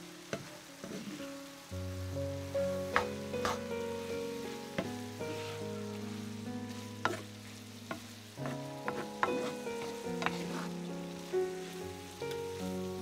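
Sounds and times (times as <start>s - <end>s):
meat sizzling in a frying pan: 0.0s - 13.0s
soft background music: 0.0s - 13.0s
wooden spoon knocking pan: 2.9s - 3.6s, 7.0s - 10.7s.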